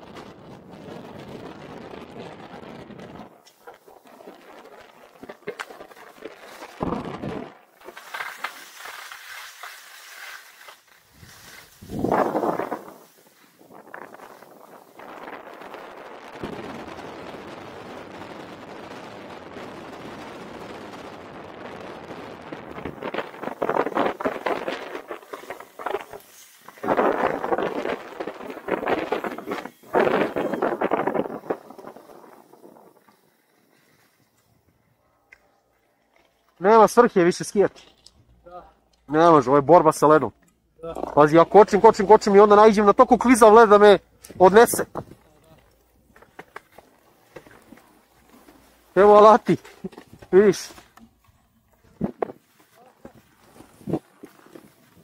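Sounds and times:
wind on microphone: 0:00.0 - 0:05.0, 0:11.1 - 0:33.2
skis scraping on icy snow: 0:03.0 - 0:16.8, 0:21.9 - 0:34.8, 0:41.2 - 0:55.0.

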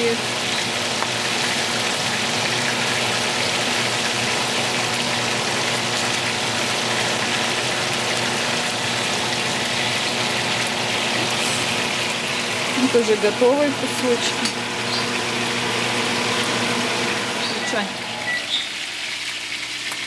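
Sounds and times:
fish sizzling in frying pan: 0:00.0 - 0:20.0.

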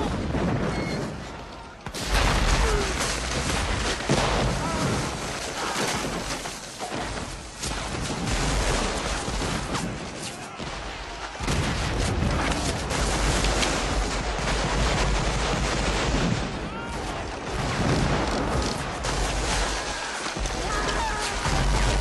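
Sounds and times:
musket shots and volleys: 0:00.0 - 0:22.0.

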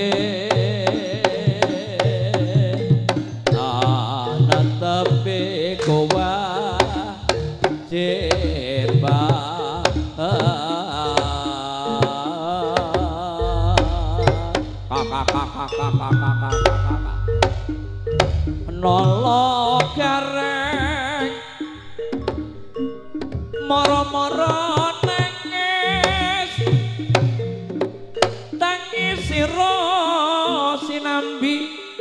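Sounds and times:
drum strokes: 0:00.0 - 0:30.0
wavering melody line: 0:00.0 - 0:32.0
deep bass tones: 0:13.4 - 0:19.8.

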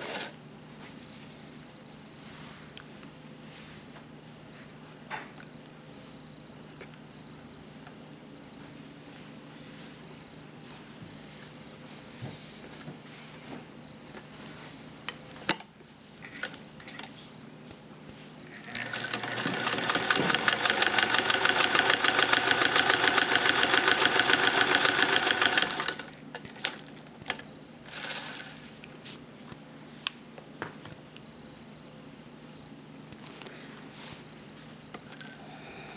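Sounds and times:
sewing machine clatter: 0:18.5 - 0:26.9.

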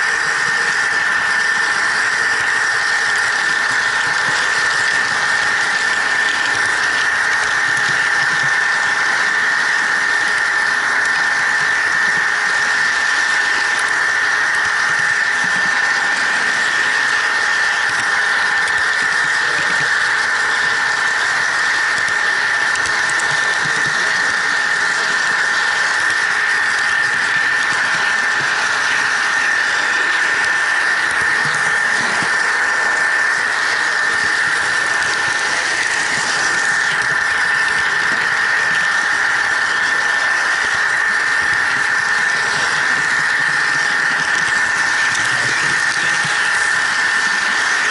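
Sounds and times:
model train motor whine: 0:00.0 - 0:47.9.

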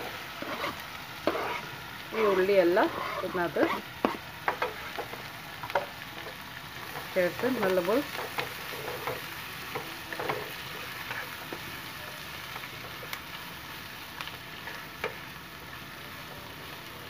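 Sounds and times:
spatula scraping and tapping pan: 0:00.0 - 0:11.7
onions sizzling in a pan: 0:00.0 - 0:17.0.

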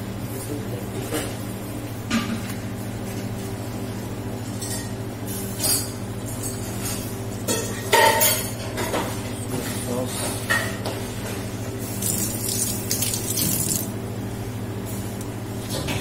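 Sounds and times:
oil pouring into a pot: 0:12.0 - 0:13.9.

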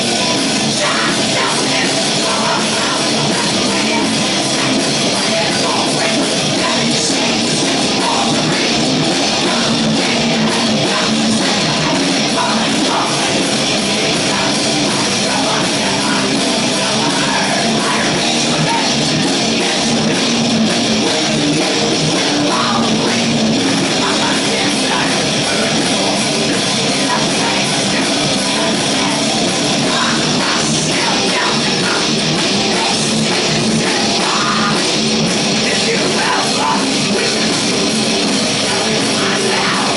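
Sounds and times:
distorted electric guitars: 0:00.0 - 0:39.9
drum kit: 0:00.0 - 0:39.9.

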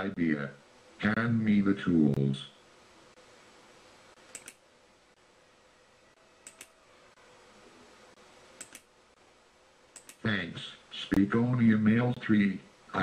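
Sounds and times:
faint room hiss: 0:00.0 - 0:13.0
short clicks in pairs: 0:04.3 - 0:04.6, 0:06.4 - 0:06.8, 0:08.6 - 0:08.9, 0:10.0 - 0:10.2.

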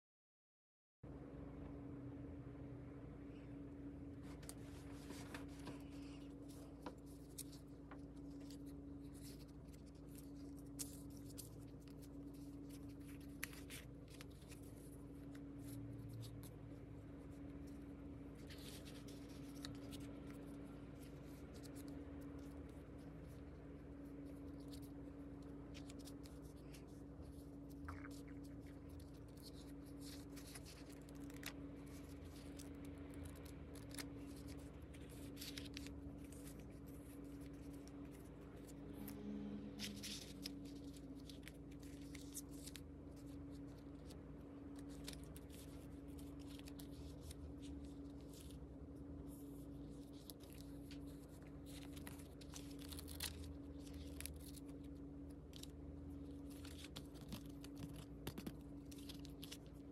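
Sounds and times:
steady low hum: 0:01.0 - 0:59.9
paper rustling and page flips: 0:04.1 - 0:59.9
crisp paper clicks: 0:24.1 - 0:38.8, 0:39.8 - 0:48.6, 0:49.3 - 0:59.9.

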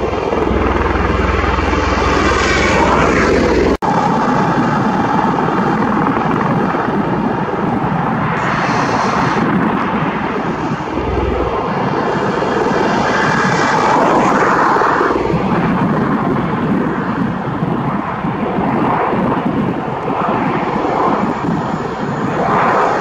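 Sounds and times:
tiltrotor aircraft flying low: 0:00.0 - 0:23.0.

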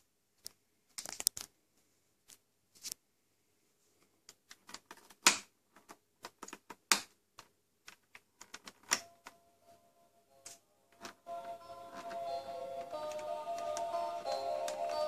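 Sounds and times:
faint electronic tune: 0:09.0 - 0:15.0.

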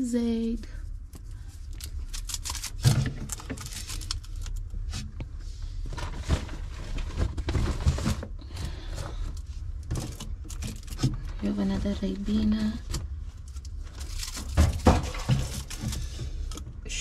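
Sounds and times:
cartons knocking and rustling: 0:05.8 - 0:13.2, 0:14.0 - 0:16.4
low handling rumble: 0:08.3 - 0:17.0.

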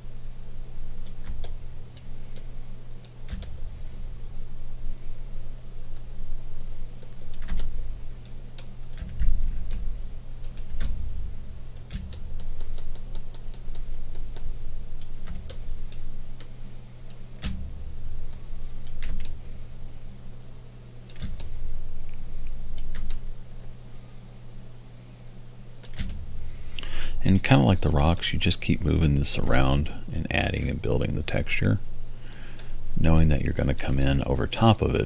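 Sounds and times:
low hum: 0:00.0 - 0:35.0
keyboard and mouse clicks: 0:11.8 - 0:15.6.

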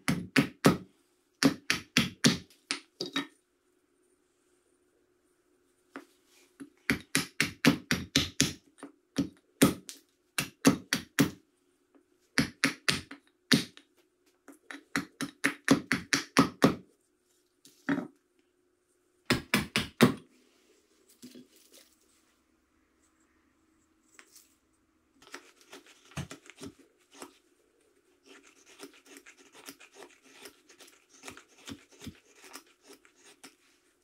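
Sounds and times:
hatchet chopping wood: 0:01.4 - 0:02.5, 0:06.9 - 0:08.6, 0:19.3 - 0:20.2.

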